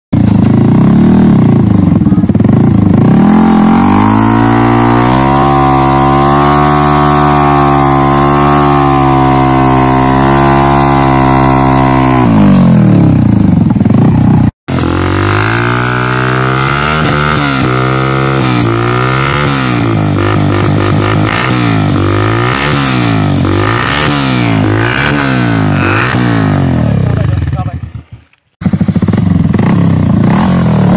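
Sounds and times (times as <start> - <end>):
motorcycle engine revving: 0.2 - 30.9
motorcycle engine blipping: 18.5 - 30.2.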